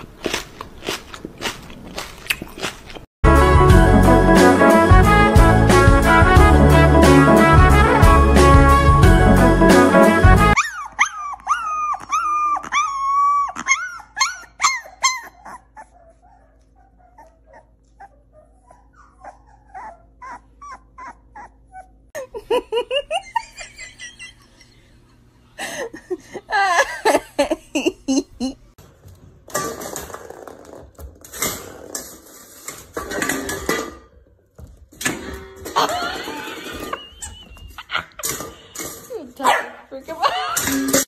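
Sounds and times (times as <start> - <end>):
music: 3.2 - 10.6
dogs whimpering and yipping: 10.5 - 22.1.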